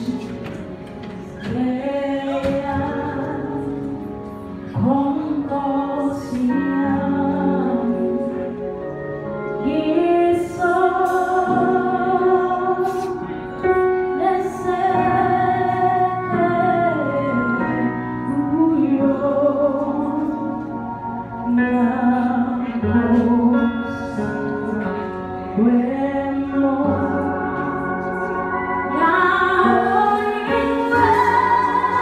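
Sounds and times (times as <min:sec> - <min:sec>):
soft electronic keyboard: 0:00.0 - 0:32.0
woman singing gospel song: 0:01.4 - 0:03.8, 0:09.6 - 0:13.2, 0:28.9 - 0:32.0.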